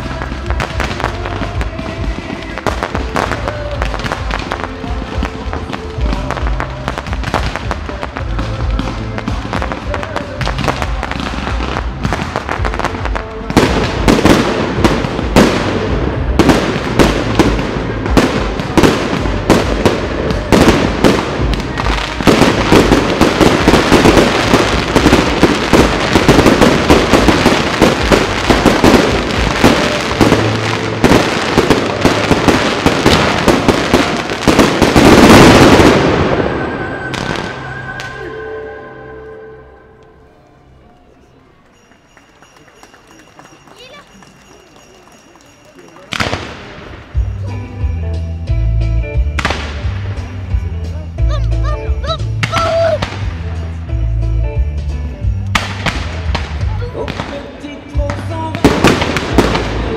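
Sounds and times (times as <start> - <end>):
fireworks bursting: 0.0 - 40.1, 41.1 - 47.7, 49.1 - 51.0, 52.0 - 54.1, 55.2 - 59.9
music playing: 0.0 - 59.9.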